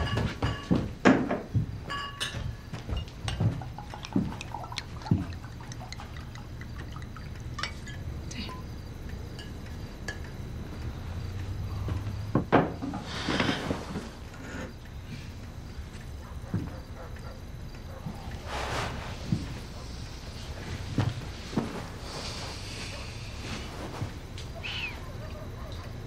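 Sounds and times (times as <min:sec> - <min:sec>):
glass clinks: 0:00.0 - 0:00.8, 0:01.9 - 0:04.9, 0:06.2 - 0:08.1
steady low hum: 0:00.0 - 0:26.0
wine pouring into glass: 0:03.6 - 0:08.1.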